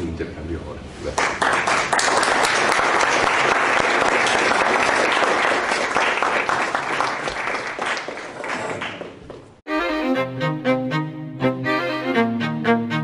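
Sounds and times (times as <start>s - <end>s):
audience applauding: 1.2s - 9.5s.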